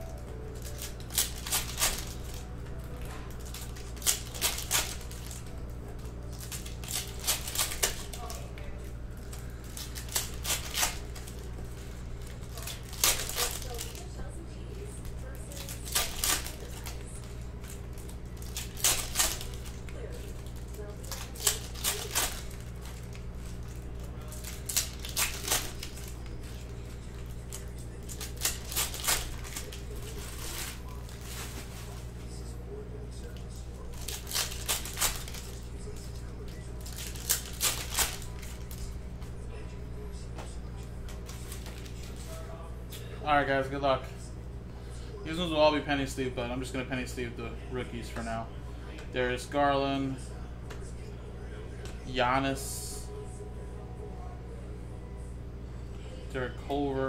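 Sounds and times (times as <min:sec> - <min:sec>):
plastic wrappers crinkling: 0:00.0 - 0:32.4, 0:33.2 - 0:39.0, 0:41.0 - 0:42.4
low steady hum: 0:00.0 - 0:57.0.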